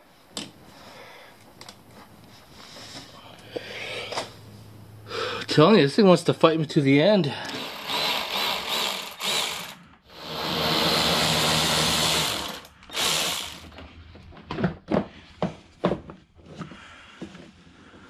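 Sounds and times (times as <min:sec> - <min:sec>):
cordless power ratchet running: 0:07.5 - 0:13.7.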